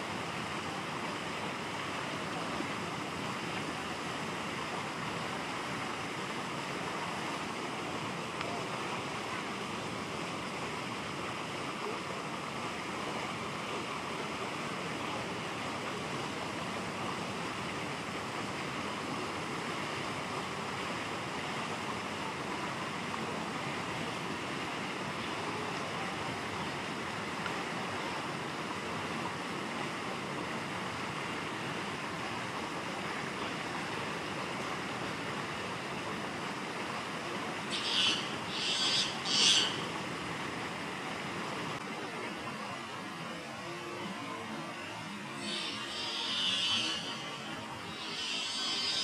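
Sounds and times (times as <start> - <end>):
short shrill calls: 37.7 - 39.8, 45.4 - 49.0.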